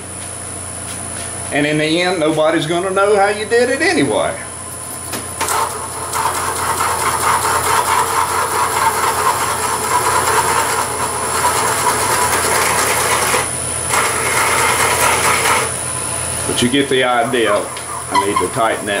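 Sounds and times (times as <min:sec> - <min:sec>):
wood lathe humming: 0:02.8 - 0:19.0
drill bit grinding into wood: 0:05.4 - 0:19.0.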